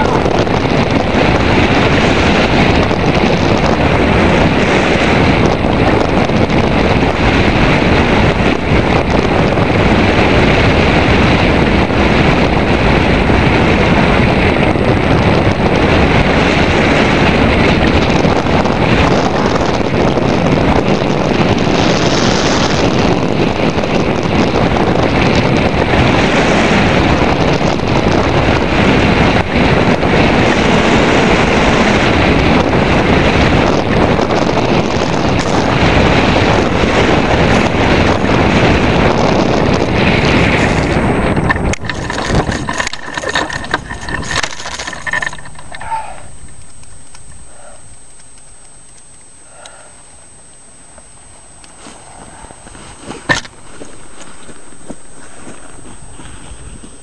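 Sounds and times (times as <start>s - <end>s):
wind rushing past microphone: 0.0s - 57.0s.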